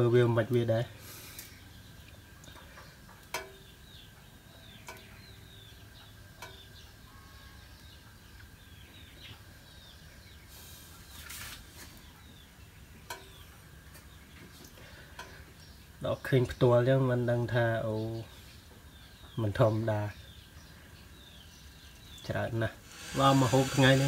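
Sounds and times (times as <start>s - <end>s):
low steady hum: 0.0s - 24.0s
small birds chirping: 0.0s - 24.0s
brief hiss: 22.8s - 24.0s.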